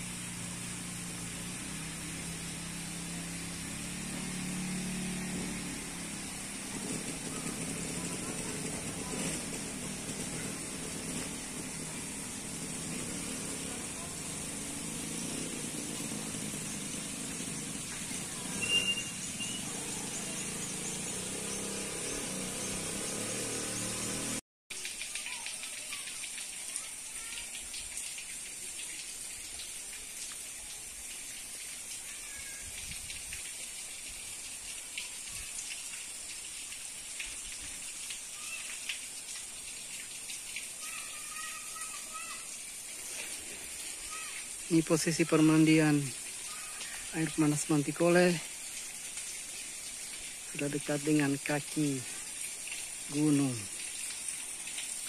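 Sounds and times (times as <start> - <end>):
outdoor background hiss: 0.0 - 55.0
short high chirps: 18.6 - 19.7.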